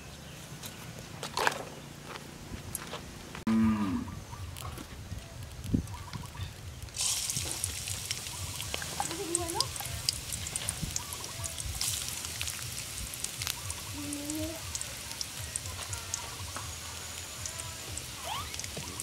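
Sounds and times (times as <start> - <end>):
ginger frying in hot oil: 4.5 - 19.0.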